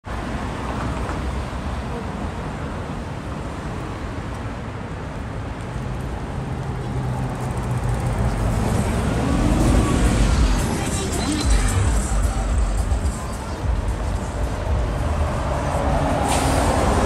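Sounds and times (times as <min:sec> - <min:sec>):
road traffic rumble: 0:00.0 - 0:17.0
indistinct voices: 0:08.4 - 0:17.0.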